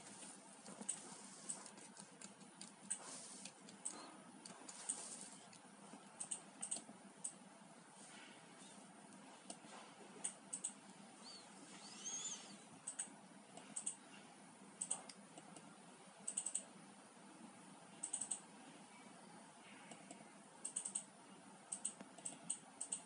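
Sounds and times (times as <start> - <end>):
faint room hiss: 0.0 - 23.0
computer mouse clicking: 0.1 - 7.4, 9.4 - 14.0, 14.8 - 15.7, 16.3 - 16.7, 18.0 - 18.4, 19.9 - 21.1, 21.7 - 23.0.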